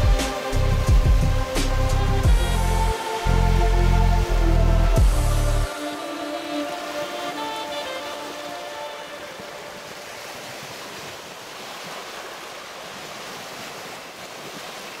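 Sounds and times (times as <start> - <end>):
background music: 0.0 - 10.2
waves with slush washing ashore: 0.0 - 15.0.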